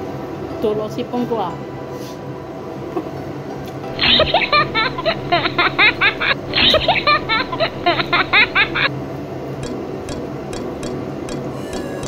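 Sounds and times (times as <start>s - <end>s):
high-pitched squeaky giggling: 3.9s - 8.9s, 11.5s - 12.0s.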